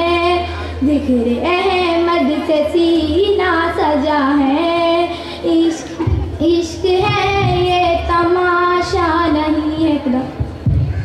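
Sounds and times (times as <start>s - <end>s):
girl singing unaccompanied: 0.0s - 10.4s
girl breathing: 5.1s - 5.6s.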